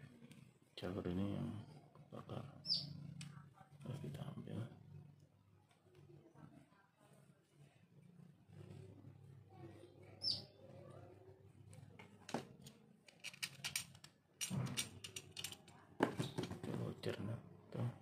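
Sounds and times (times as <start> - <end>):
clicking and rustling handling: 11.6 - 16.8.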